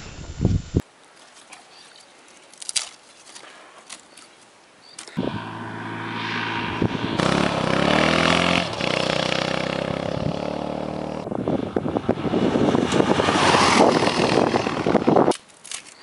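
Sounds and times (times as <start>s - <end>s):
rough pulsing motorcycle engine: 5.2s - 15.2s
motorcycle engine revving: 5.2s - 15.3s.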